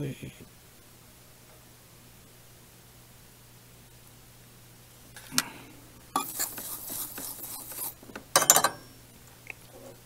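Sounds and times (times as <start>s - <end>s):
tools scraping on workbench: 6.2s - 8.8s
tools clattering: 7.7s - 8.9s.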